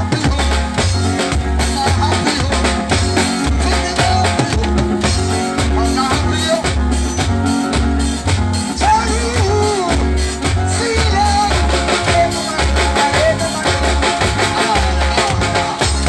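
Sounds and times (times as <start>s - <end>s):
deep bass line: 0.0s - 16.0s
person singing: 0.0s - 16.0s
steady drums: 0.0s - 16.0s.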